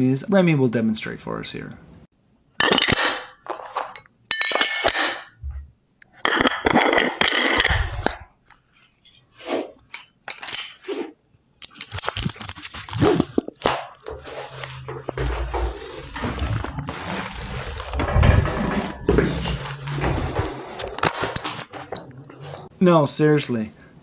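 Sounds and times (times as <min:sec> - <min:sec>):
straps rasping: 0:11.7 - 0:22.7.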